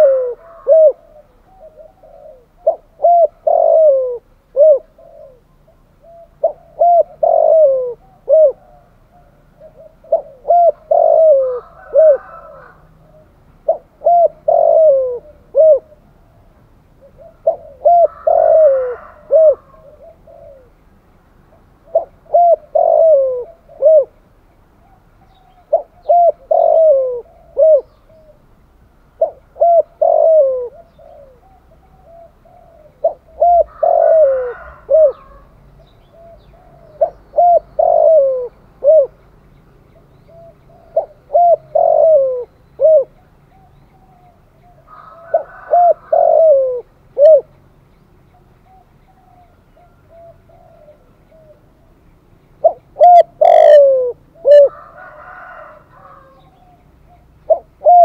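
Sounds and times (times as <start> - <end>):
dove cooing: 0.0 - 20.8, 21.4 - 24.2, 24.8 - 39.2, 39.9 - 47.6, 48.3 - 52.0, 52.6 - 58.0.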